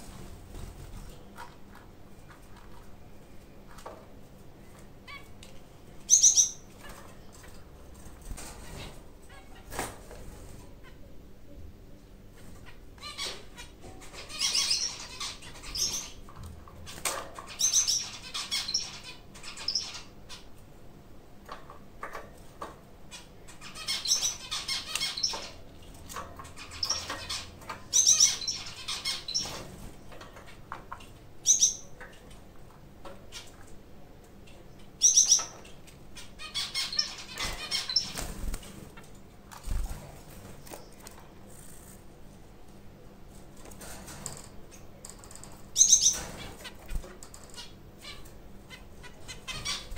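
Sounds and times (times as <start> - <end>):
finches calling: 6.1 - 6.8, 12.6 - 16.3, 17.5 - 20.5, 23.2 - 25.6, 26.6 - 29.6, 31.4 - 31.9, 35.0 - 35.6, 36.2 - 38.4, 45.8 - 49.9.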